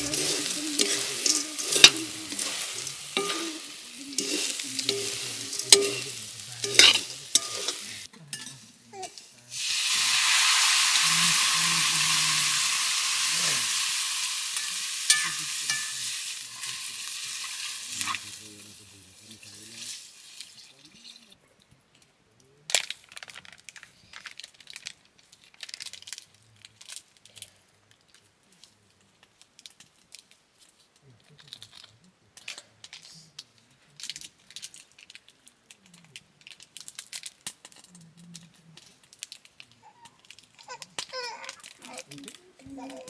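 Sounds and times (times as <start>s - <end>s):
plastic sachets crinkling: 0.0s - 8.1s, 22.7s - 43.0s
sachets being torn open: 22.7s - 43.0s.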